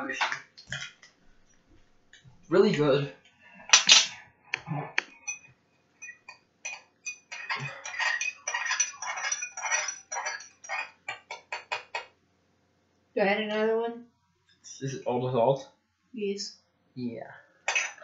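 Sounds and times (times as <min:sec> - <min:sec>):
spoon clinking in a glass: 0:05.2 - 0:11.8.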